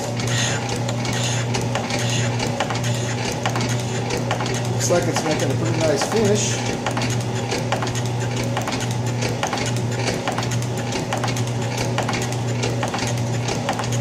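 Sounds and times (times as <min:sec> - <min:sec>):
metal shaper running: 0:00.0 - 0:14.0
motor hum: 0:00.0 - 0:14.0.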